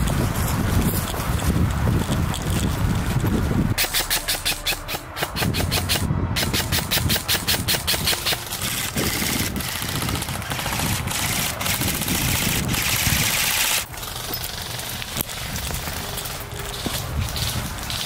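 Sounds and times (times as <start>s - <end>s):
airsoft rifles firing bursts: 3.8s - 14.8s.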